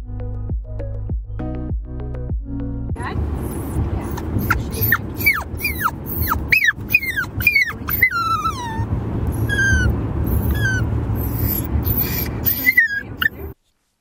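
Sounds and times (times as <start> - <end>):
low car rumble: 2.9 - 13.6
puppy whimpering: 3.5 - 13.6.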